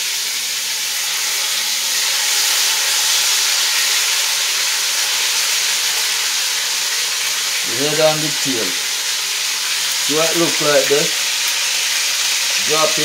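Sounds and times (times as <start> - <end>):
fish sizzling in hot oil: 0.0 - 13.0.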